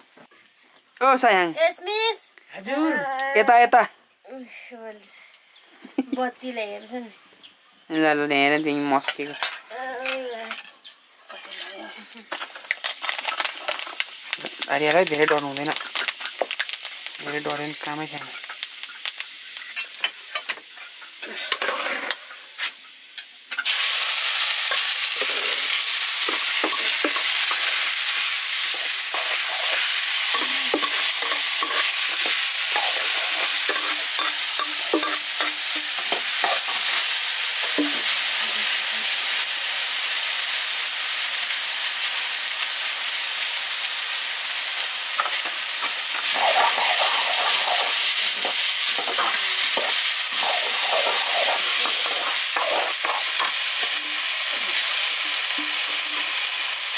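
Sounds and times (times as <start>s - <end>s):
rice sizzling in hot oil: 8.8s - 56.9s
metal ladle scraping wok: 21.5s - 22.4s, 28.7s - 36.9s, 45.2s - 56.6s.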